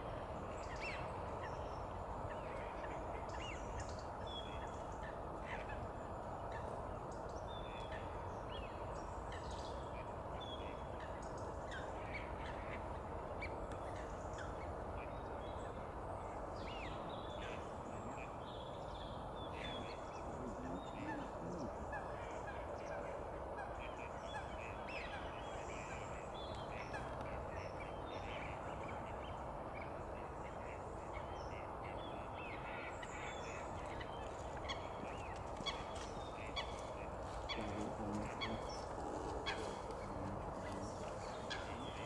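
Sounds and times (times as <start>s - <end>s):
bird chatter: 32.6s - 42.0s
waterfowl honking calls: 34.7s - 42.0s.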